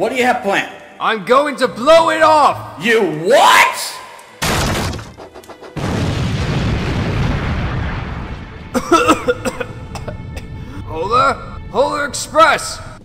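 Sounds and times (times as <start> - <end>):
thud: 4.4 - 6.4
explosion boom: 5.8 - 10.8.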